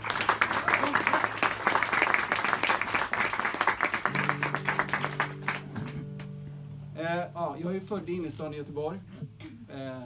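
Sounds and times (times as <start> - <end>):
audience applauding: 0.0 - 6.3
acoustic guitar chords: 4.1 - 9.7.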